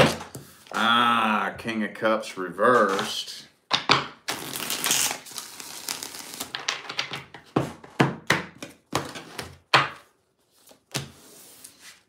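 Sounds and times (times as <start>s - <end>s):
cards being shuffled: 4.3s - 7.0s.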